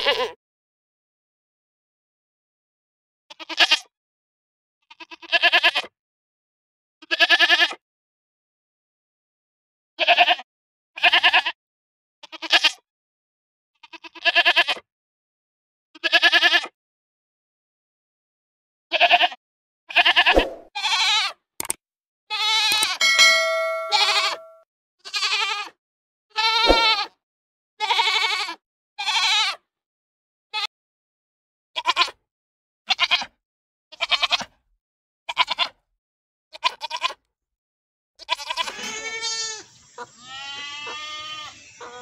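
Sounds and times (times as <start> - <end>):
goat bleating: 0.0 - 0.4, 3.3 - 3.9, 4.9 - 5.9, 7.0 - 7.8, 10.0 - 10.4, 11.0 - 11.6, 12.2 - 12.8, 13.8 - 14.8, 16.0 - 16.7, 18.9 - 21.3, 22.3 - 24.4, 25.0 - 25.7, 26.4 - 27.1, 27.8 - 29.6, 31.8 - 32.2, 32.9 - 33.3, 33.9 - 34.5, 35.3 - 35.8, 36.5 - 37.2, 38.2 - 42.0
steady ringing tone: 22.9 - 24.6.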